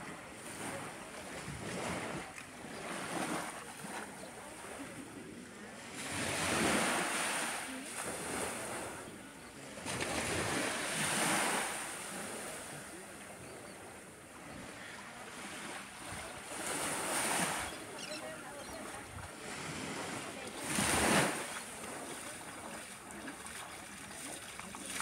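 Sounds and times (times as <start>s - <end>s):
small waves washing on sand: 0.0s - 25.0s.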